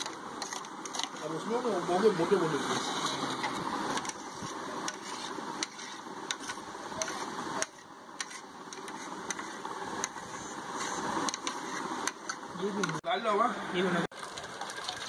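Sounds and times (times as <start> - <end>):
steady background noise: 0.0 - 15.0.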